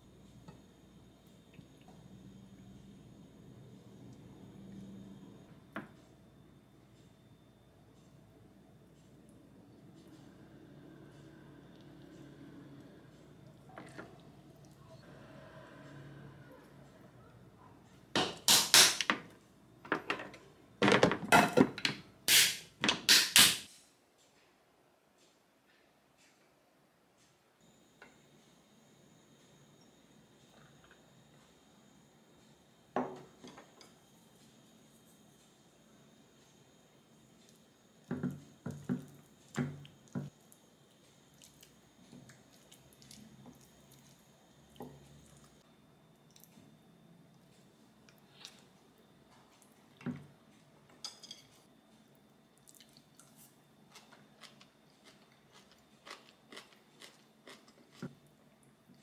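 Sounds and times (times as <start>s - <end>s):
soft mixing of rice: 33.8s - 59.0s.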